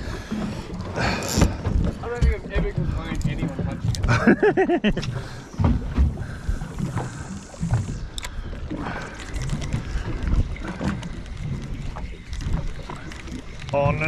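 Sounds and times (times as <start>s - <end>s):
water sounds: 0.0s - 14.0s.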